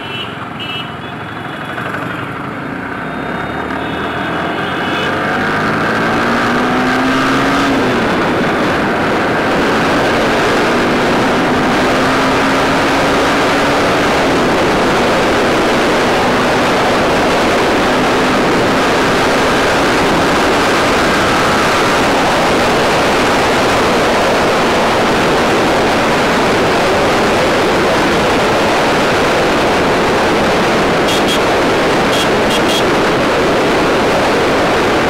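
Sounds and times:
wind rushing over microphone: 0:05.4 - 0:35.0.

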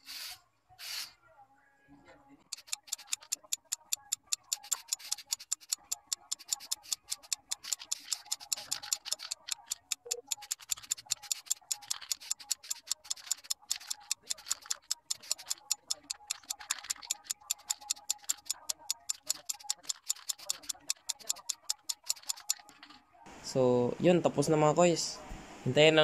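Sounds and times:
spray can ball rattling: 0:00.0 - 0:01.1, 0:04.5 - 0:23.0
spray hissing: 0:00.0 - 0:01.1.

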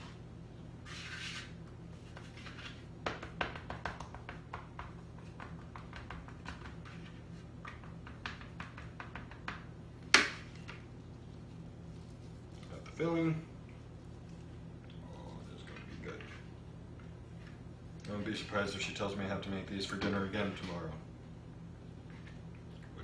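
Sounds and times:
low steady hum: 0:00.0 - 0:23.0
hands tapping dough on board: 0:03.0 - 0:06.9, 0:07.6 - 0:10.4.

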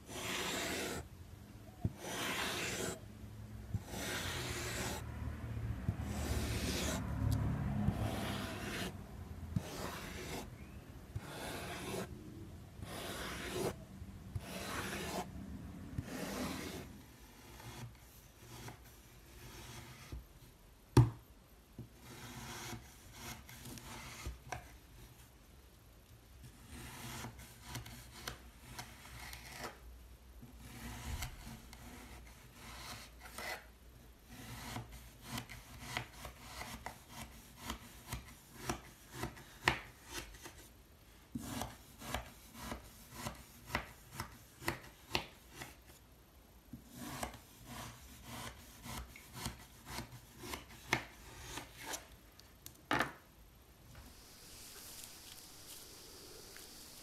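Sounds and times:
soft scraping: 0:53.9 - 0:57.0.

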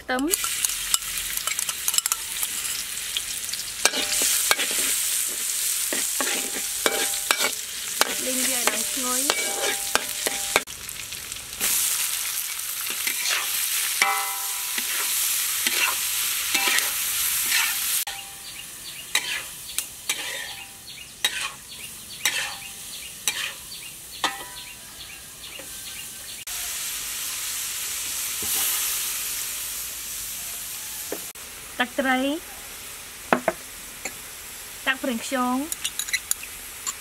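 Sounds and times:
hot oil sizzling in a wok: 0:00.2 - 0:37.0
metal spatula scraping a wok: 0:00.3 - 0:10.7, 0:12.8 - 0:18.4, 0:19.1 - 0:24.7.

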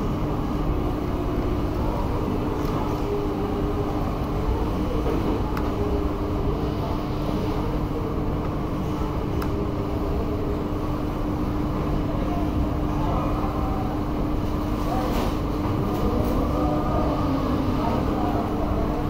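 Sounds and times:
steady machine hum: 0:00.0 - 0:19.0.

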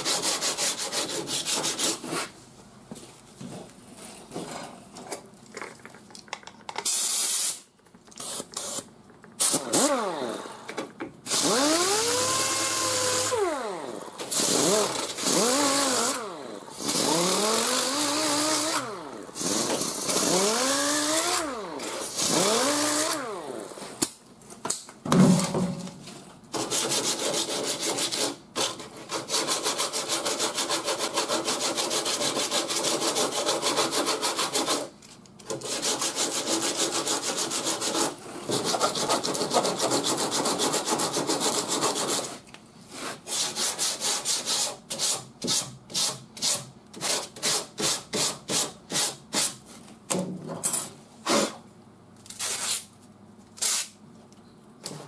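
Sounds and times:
sanding block rasping on filler: 0:00.0 - 0:02.4, 0:26.6 - 0:34.9, 0:35.6 - 0:49.6.

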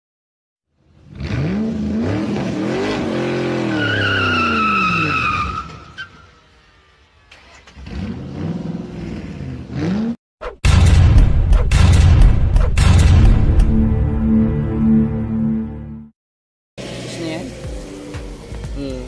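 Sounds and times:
car engine revving: 0:00.8 - 0:10.2
tyre squeal: 0:03.6 - 0:06.4.

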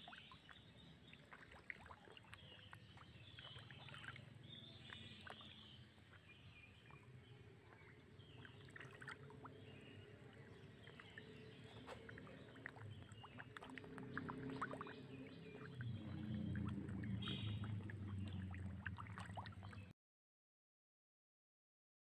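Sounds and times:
water splashing and lapping: 0:00.0 - 0:19.9
low rumble: 0:09.3 - 0:19.9.

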